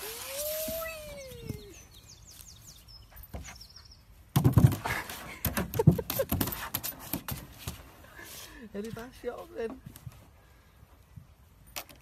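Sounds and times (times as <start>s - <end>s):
small birds chirping: 0.8s - 4.3s
close rustling and bumping: 4.3s - 8.0s.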